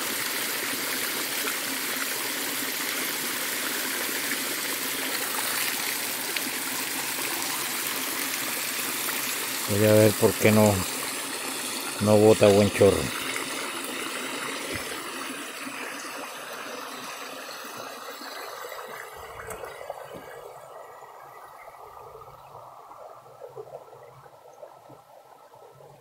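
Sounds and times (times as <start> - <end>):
water rushing over rocks: 0.0 - 20.6.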